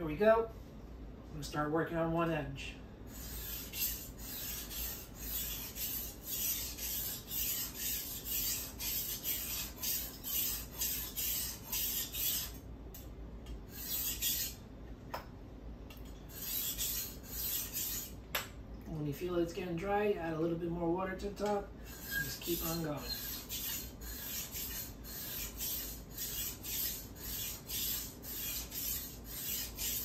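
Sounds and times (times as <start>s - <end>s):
knife rasping on whetstone: 3.1s - 12.6s, 13.7s - 14.6s, 16.3s - 18.2s, 21.9s - 30.0s.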